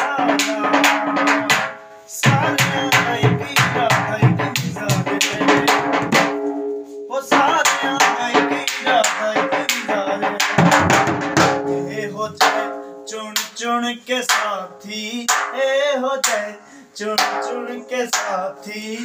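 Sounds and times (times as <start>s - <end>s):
barrel drum beaten with sticks: 0.0s - 12.8s, 15.3s - 15.6s, 17.2s - 18.4s.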